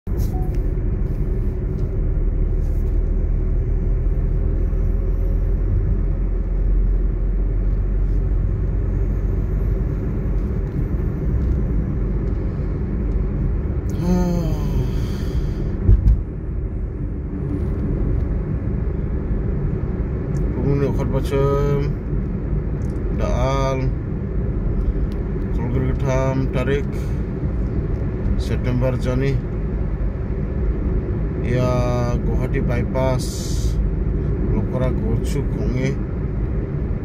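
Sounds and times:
car cabin road noise: 0.0s - 37.0s
short thump: 15.8s - 16.2s.

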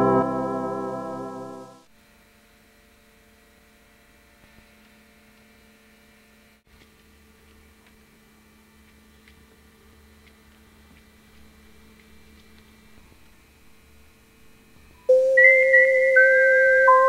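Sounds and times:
electronic keyboard organ music: 0.0s - 1.8s, 15.1s - 17.0s
steady electrical hum: 0.0s - 1.9s.

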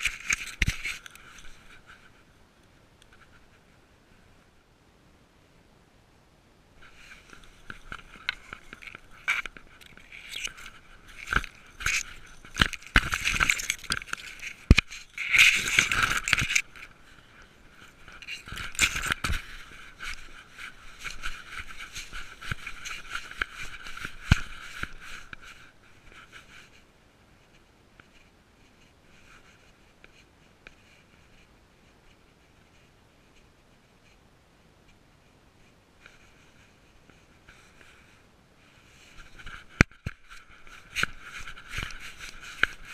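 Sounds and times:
dry grass crunching and crackling: 6.8s - 26.4s.

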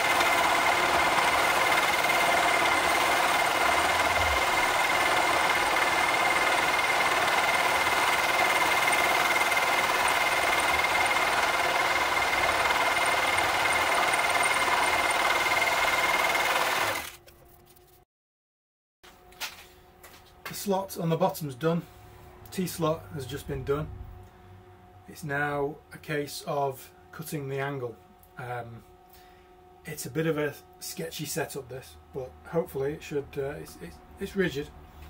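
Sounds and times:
milling machine cutting metal: 0.0s - 17.2s.

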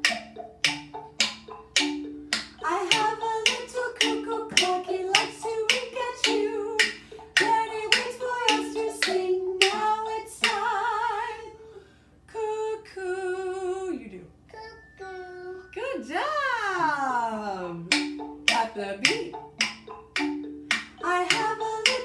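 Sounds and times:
wooden spoons tapping: 0.0s - 10.9s, 17.9s - 22.0s
woman singing: 2.6s - 11.6s, 12.3s - 14.2s, 18.5s - 19.4s, 21.0s - 22.0s.

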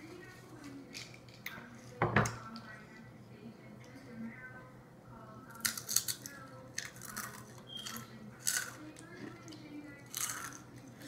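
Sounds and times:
tortilla chip crunching: 5.6s - 8.8s, 9.5s - 11.0s.

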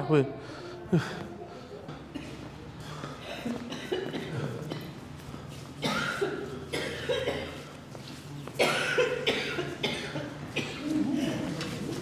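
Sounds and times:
person coughing: 3.2s - 5.0s, 5.8s - 7.6s, 8.6s - 11.5s.

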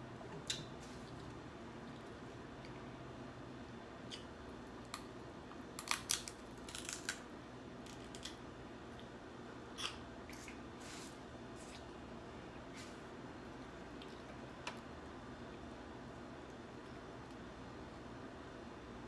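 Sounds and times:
crab shell cracking: 5.8s - 8.4s.

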